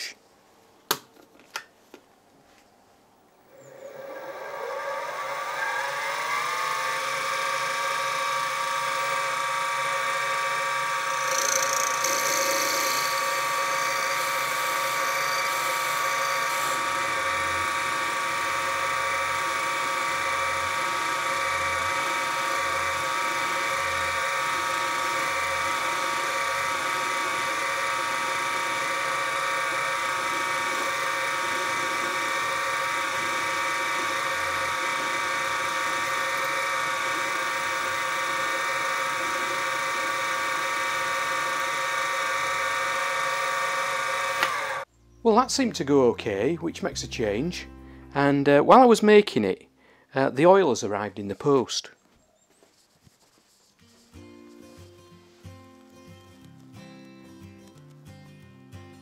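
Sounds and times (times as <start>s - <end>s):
drill boring metal: 3.5s - 44.9s
mill spindle motor whine: 3.5s - 44.9s.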